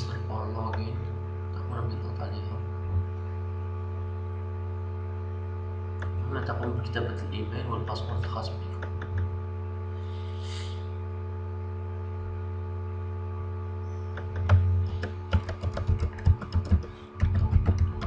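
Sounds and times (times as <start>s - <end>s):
electrical hum: 0.0s - 18.0s
computer keys clicking: 14.1s - 18.0s.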